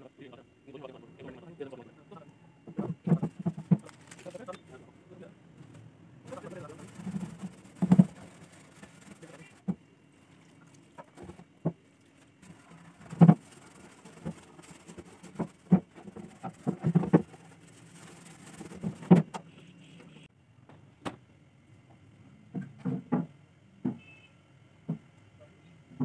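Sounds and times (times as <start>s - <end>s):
scouring pad scrubbing metal: 6.3s - 11.4s, 12.4s - 19.1s.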